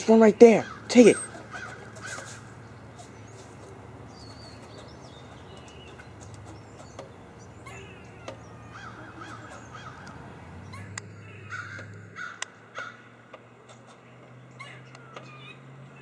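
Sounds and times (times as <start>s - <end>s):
crow cawing: 0.5s - 2.6s, 7.6s - 13.2s.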